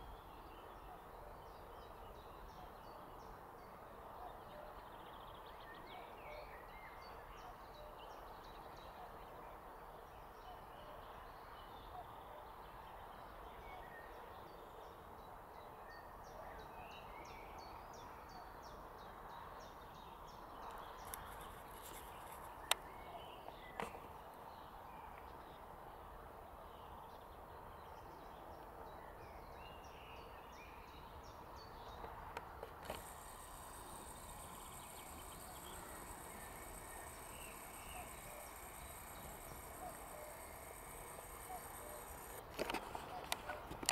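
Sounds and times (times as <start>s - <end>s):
sharp clicks: 32.4s - 43.9s
distant birds calling: 32.7s - 43.6s
faint high ticking: 32.8s - 42.4s.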